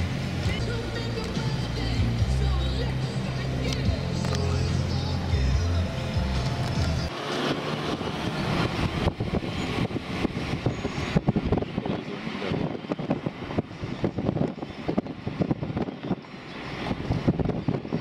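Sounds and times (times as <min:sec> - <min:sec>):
car engine and road noise: 0:00.0 - 0:18.0
music: 0:00.4 - 0:07.1
wind buffeting microphone: 0:06.5 - 0:18.0.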